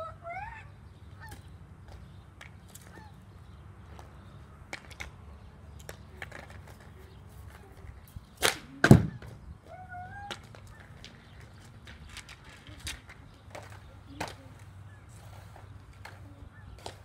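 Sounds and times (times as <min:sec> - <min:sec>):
hockey stick tapping ball on asphalt: 0:01.8 - 0:03.0, 0:03.9 - 0:07.0, 0:15.9 - 0:17.0
stick cracking on ball: 0:08.4 - 0:09.1.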